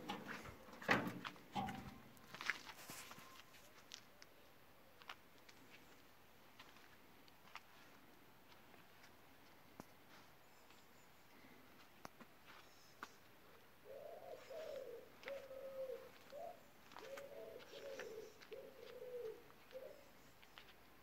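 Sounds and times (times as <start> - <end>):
pigeon cooing: 13.8 - 20.2.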